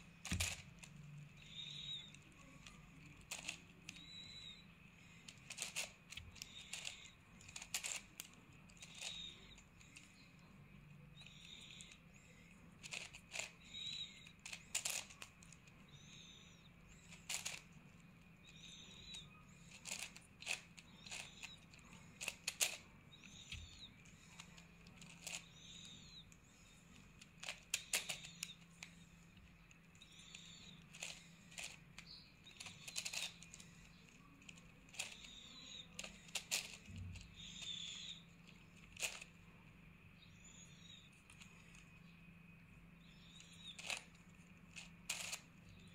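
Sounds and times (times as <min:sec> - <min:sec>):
faint steady hum: 0:00.0 - 0:45.9
puzzle cube layers clicking: 0:05.3 - 0:10.1, 0:12.8 - 0:15.3, 0:17.1 - 0:17.7, 0:18.7 - 0:21.6, 0:22.2 - 0:22.8, 0:27.3 - 0:28.8, 0:30.2 - 0:33.6.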